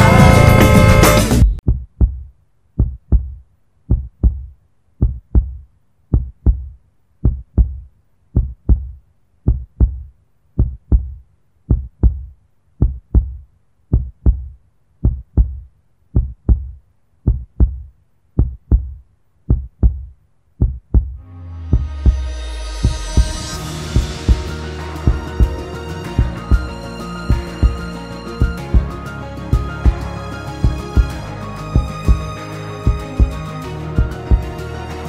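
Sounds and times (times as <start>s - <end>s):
heartbeat thumps: 0.0s - 25.6s, 26.2s - 26.7s, 27.3s - 30.0s, 30.6s - 34.6s
rising swell of noise: 21.2s - 34.9s.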